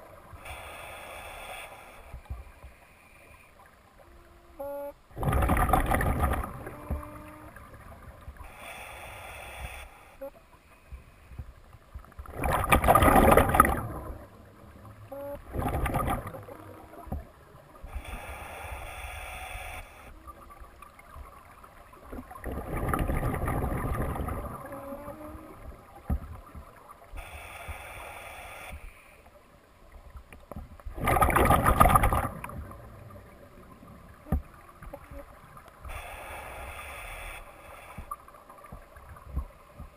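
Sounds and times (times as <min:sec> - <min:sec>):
regulator inhale hiss: 0:00.3 - 0:03.6, 0:08.4 - 0:11.4, 0:17.8 - 0:20.2, 0:27.1 - 0:29.4, 0:35.8 - 0:38.3
exhaled bubbles rushing: 0:05.2 - 0:06.9, 0:12.3 - 0:14.3, 0:15.4 - 0:16.6, 0:22.2 - 0:24.7, 0:30.9 - 0:32.8.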